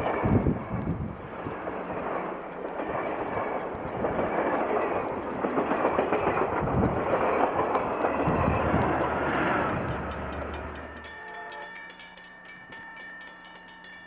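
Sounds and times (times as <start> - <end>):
diesel locomotive engine hum: 0.0 - 14.0
train cars rolling past: 0.0 - 14.0.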